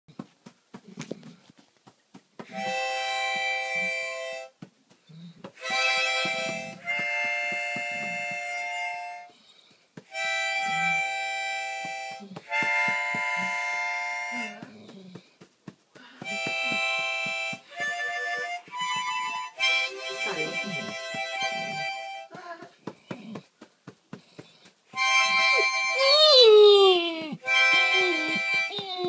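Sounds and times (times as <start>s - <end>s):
harmonica playing chords: 2.5s - 4.5s, 5.6s - 9.3s, 10.1s - 14.8s, 16.2s - 22.4s, 24.9s - 29.0s.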